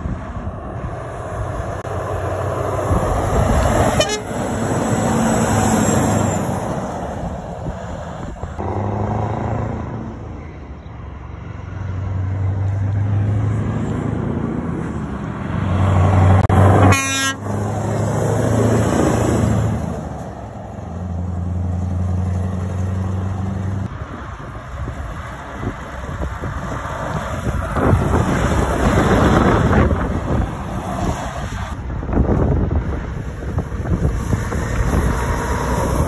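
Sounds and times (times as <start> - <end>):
lorry diesel engines passing: 0.0 - 36.0
horn toot: 3.9 - 4.5, 16.8 - 17.6.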